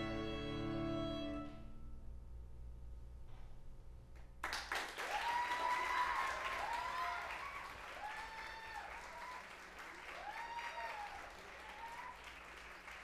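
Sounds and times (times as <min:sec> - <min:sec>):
audience applause: 0:04.4 - 0:13.0
audience cheering: 0:04.7 - 0:13.0.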